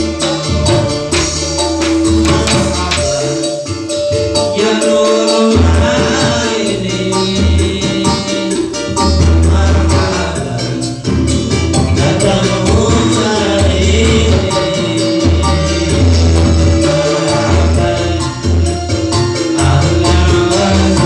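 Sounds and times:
man singing through microphone: 0.0s - 3.7s, 4.4s - 21.0s
hand drums: 0.0s - 4.8s
electronic keyboard: 0.0s - 21.0s
strummed small guitars: 0.0s - 21.0s.

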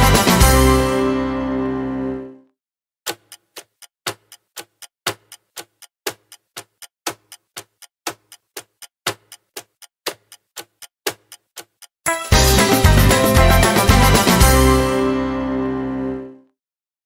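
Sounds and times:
countdown timer ticking: 3.1s - 15.2s.

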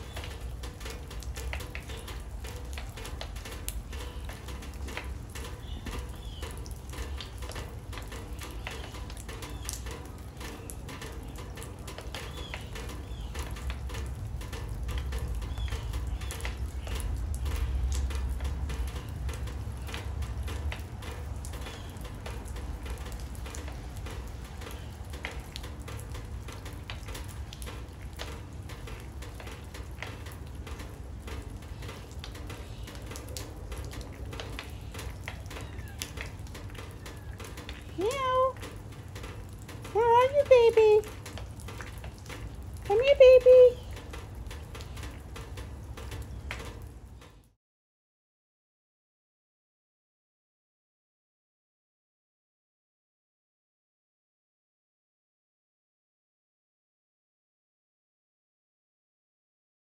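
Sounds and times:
rain splashing into water: 0.0s - 47.6s.

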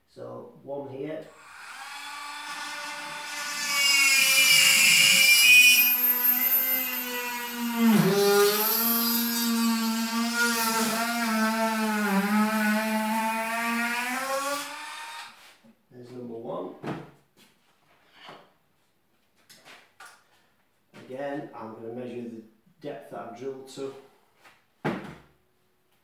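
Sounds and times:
electric drill whining: 1.3s - 15.4s.

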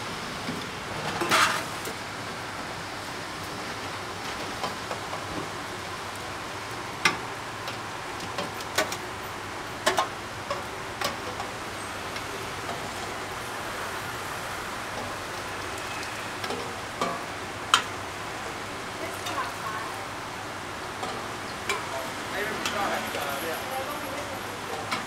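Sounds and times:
metal ladle scraping pot: 1.2s - 1.8s.

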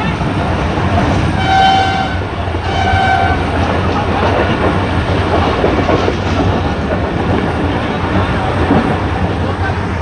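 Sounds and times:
passenger train running on rails: 0.0s - 10.0s
train horn blast: 1.4s - 3.6s.

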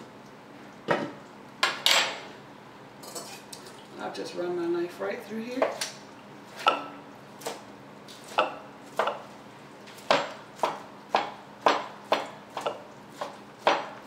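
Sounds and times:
knife chopping on plastic board: 8.2s - 9.3s, 10.0s - 14.0s.

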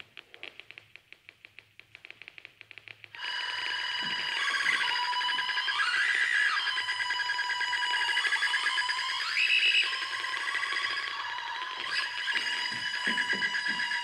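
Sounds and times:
high electronic tones: 3.2s - 14.0s.

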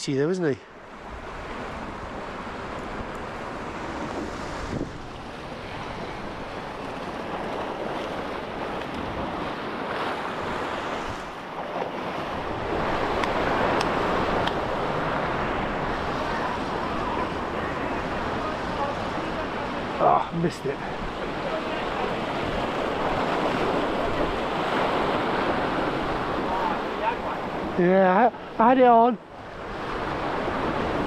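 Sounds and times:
wind on microphone: 1.0s - 19.9s
surf breaking on rocks: 1.3s - 31.0s.

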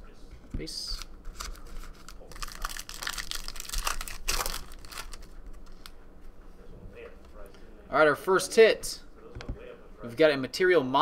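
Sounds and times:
cards crinkling and rustling: 0.8s - 5.9s.

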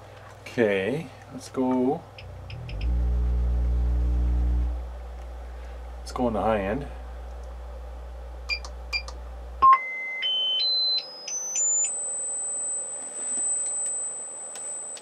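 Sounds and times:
clicks: 1.7s - 3.0s
high pitched sine tone: 2.2s - 4.9s
low bass tone: 2.2s - 9.6s.

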